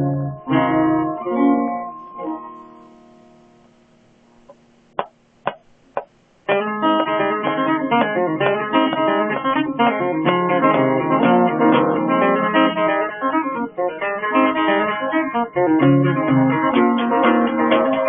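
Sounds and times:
acoustic guitar playing: 0.0s - 18.0s
sharp taps on guitar: 4.4s - 11.9s.

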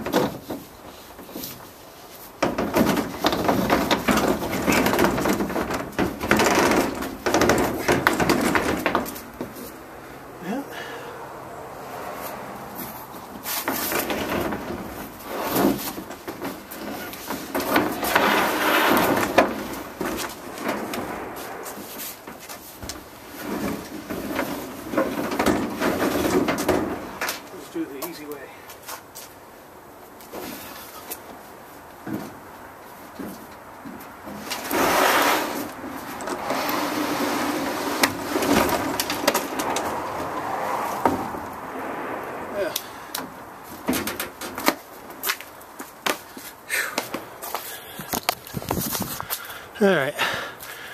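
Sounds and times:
plastic bed liner scraping and knocking: 0.0s - 9.7s, 13.4s - 27.5s, 33.2s - 40.3s.

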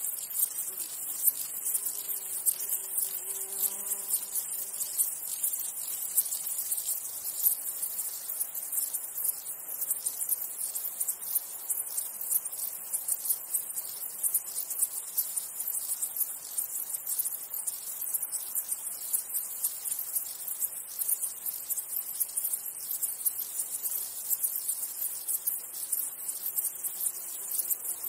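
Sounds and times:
insects chirring in chorus: 0.0s - 28.0s.

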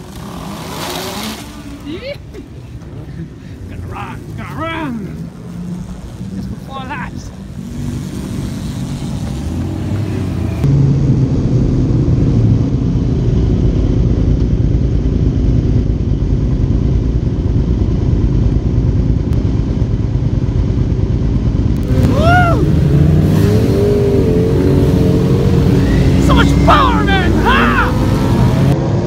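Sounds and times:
motorcycle engine revving: 0.0s - 2.0s, 4.0s - 14.6s, 21.6s - 29.0s
motorcycle engines idling: 0.0s - 10.7s, 13.2s - 28.8s.

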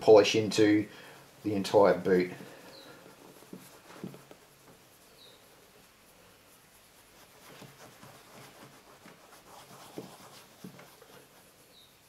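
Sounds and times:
cloth rubbing leather boot: 0.0s - 12.0s
soft knocks: 3.5s - 4.4s.

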